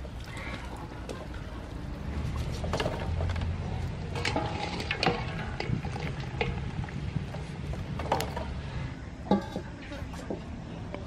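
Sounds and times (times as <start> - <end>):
low steady rumble: 0.0 - 11.0
metal ladle knocking and clattering: 4.1 - 6.7, 9.3 - 10.4.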